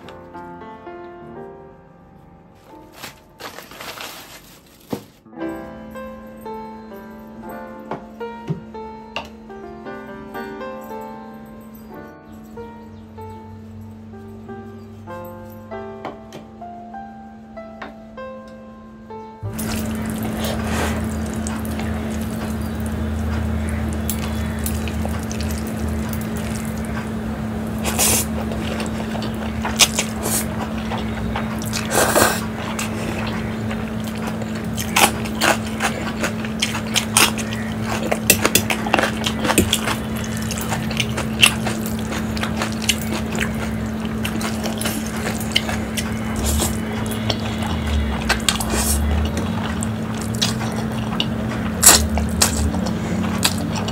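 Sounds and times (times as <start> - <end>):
low hum: 19.4 - 53.9
chewing and slurping: 19.5 - 53.9.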